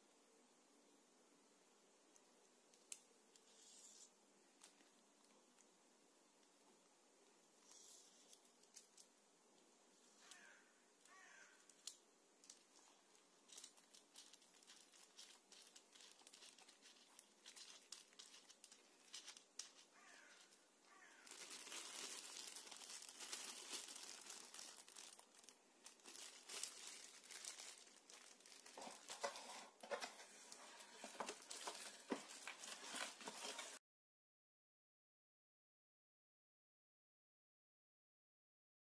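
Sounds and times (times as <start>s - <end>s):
plastic bag crinkling: 11.7s - 33.8s.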